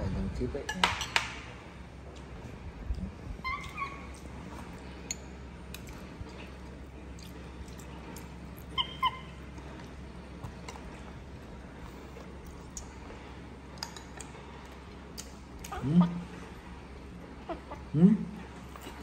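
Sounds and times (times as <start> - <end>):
baby monkey squeaky calls: 3.4 - 4.1, 8.7 - 9.4.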